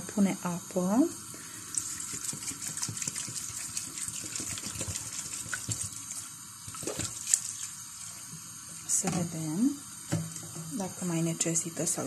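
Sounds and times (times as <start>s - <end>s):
water pouring into metal pot: 1.4s - 9.0s.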